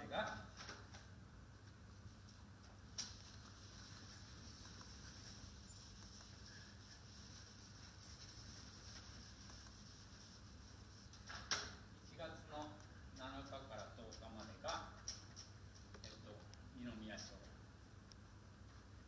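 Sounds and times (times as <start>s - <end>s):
eraser squeaking on whiteboard: 3.2s - 11.4s.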